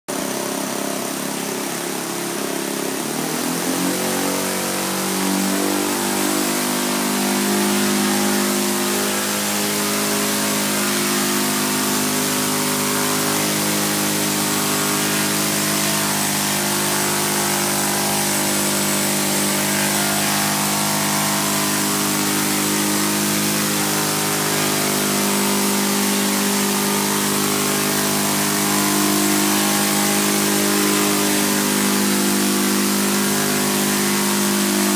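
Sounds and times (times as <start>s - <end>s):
electric motor rotors: 0.1s - 34.9s
helicopter engine droning: 0.2s - 34.9s.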